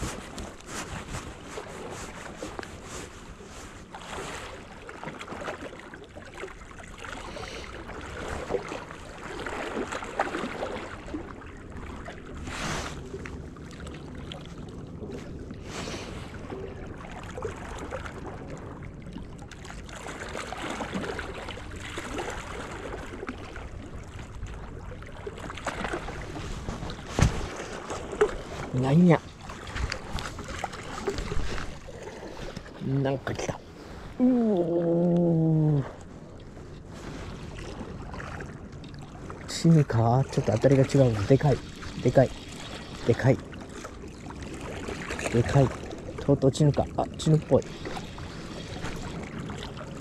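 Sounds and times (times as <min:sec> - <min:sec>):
wind noise on microphone: 0:00.0 - 0:02.4
small waves lapping at shore: 0:00.0 - 0:50.0.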